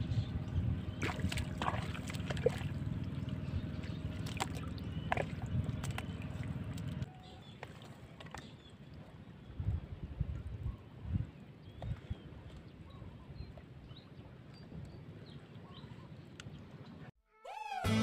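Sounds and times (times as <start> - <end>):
water sloshing and splashing: 0.7 - 10.6.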